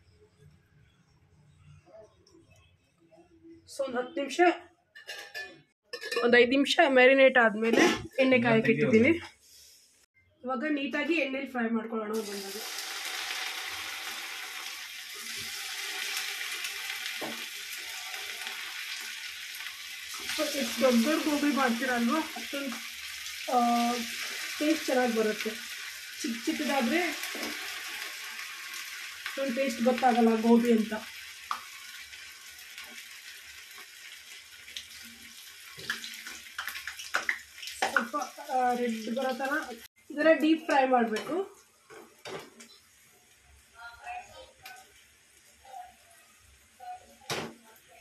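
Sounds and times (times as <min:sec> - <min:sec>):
batter deep-frying in oil: 0:12.1 - 0:48.0.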